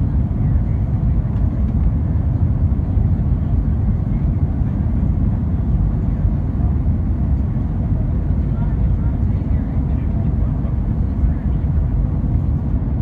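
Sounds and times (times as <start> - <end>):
jet engines rumbling in cabin: 0.0 - 13.0.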